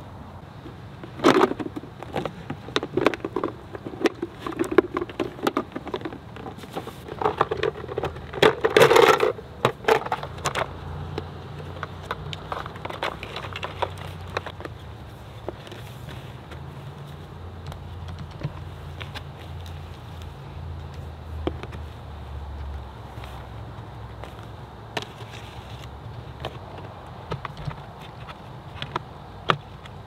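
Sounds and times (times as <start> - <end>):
hard plastic parts clicking and clacking: 0.6 - 16.6, 17.6 - 19.8, 24.2 - 30.0.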